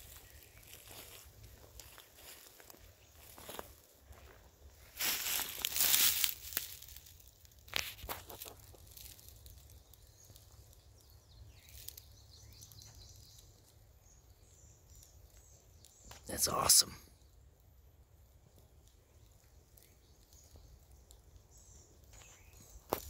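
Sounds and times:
rustling in dry leaves: 0:00.0 - 0:13.8, 0:21.5 - 0:23.0.

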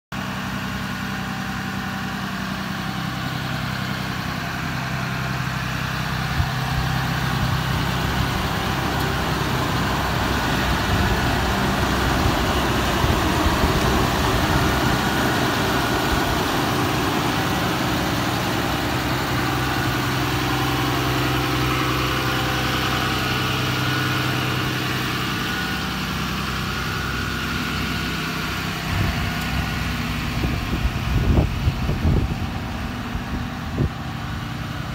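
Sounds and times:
diesel truck engine idling: 0:00.1 - 0:34.9.

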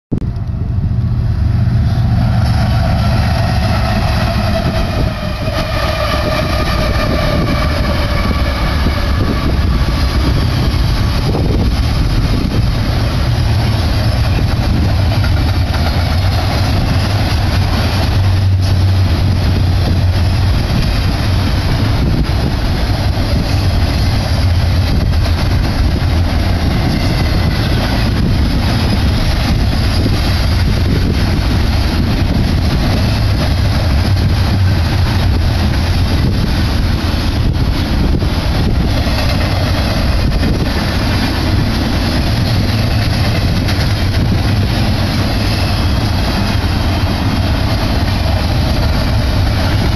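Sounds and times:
train wheels rumbling on rail: 0:00.1 - 0:49.9
locomotives passing: 0:00.2 - 0:49.9.

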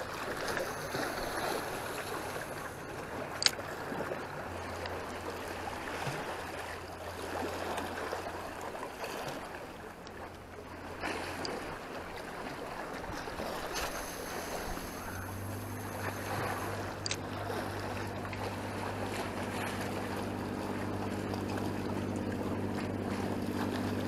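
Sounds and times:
low steady hum: 0:00.0 - 0:24.0
water lapping against concrete: 0:00.0 - 0:24.0.

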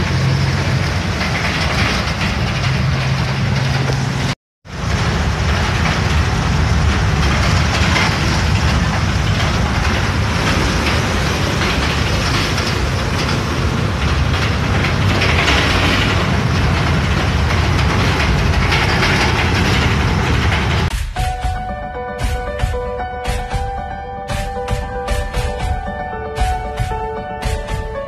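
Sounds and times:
bus engine and road rumble: 0:00.0 - 0:21.0.

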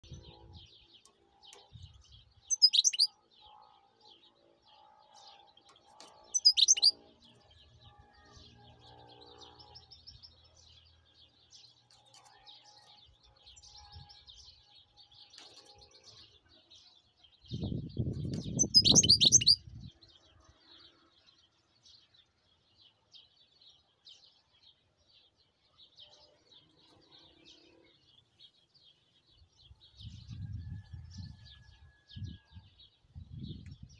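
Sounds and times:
goldfinch twittering: 0:02.5 - 0:03.1, 0:06.4 - 0:07.0, 0:18.6 - 0:19.6
sharp high bird calls: 0:02.5 - 0:03.1, 0:06.4 - 0:06.9, 0:18.6 - 0:19.6.

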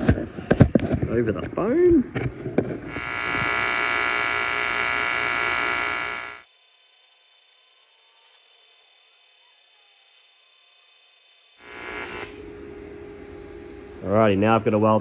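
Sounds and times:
welding arc electric buzz: 0:02.8 - 0:15.0.

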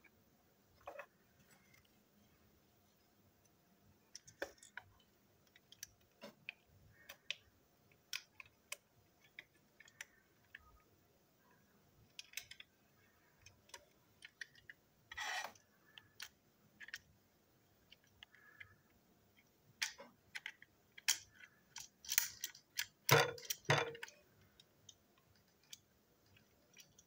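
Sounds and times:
plastic parts clicking and tapping: 0:04.0 - 0:10.9, 0:12.0 - 0:17.1, 0:17.8 - 0:27.0
screwdriver scraping on table: 0:15.1 - 0:15.6.

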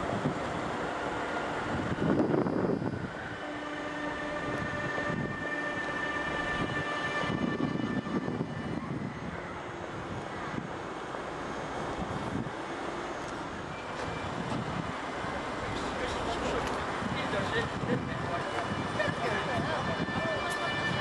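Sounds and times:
train rumble: 0:00.0 - 0:21.0.

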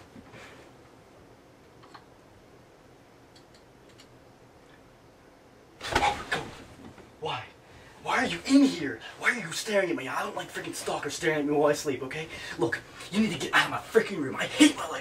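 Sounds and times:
faint small clicks: 0:03.3 - 0:04.9.

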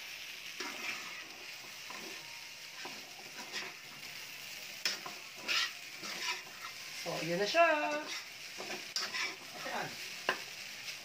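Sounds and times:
fried rice sizzling in a pan: 0:00.0 - 0:11.0
spatula scraping a pan: 0:00.5 - 0:04.0, 0:04.8 - 0:11.0.

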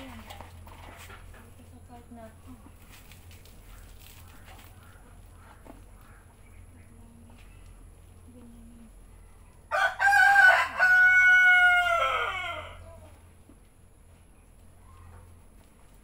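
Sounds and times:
rooster crowing: 0:09.7 - 0:13.0.

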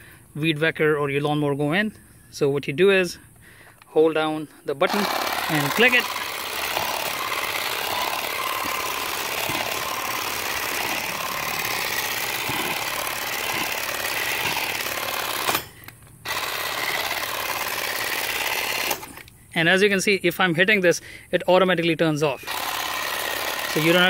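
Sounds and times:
cordless grass shear clipping grass: 0:04.8 - 0:19.4, 0:22.3 - 0:24.0.

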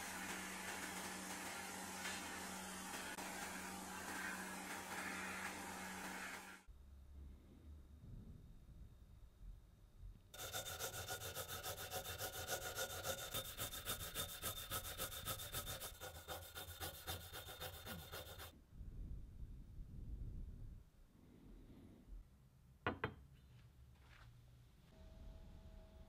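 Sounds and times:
rubbing brass with abrasive: 0:00.0 - 0:06.6.

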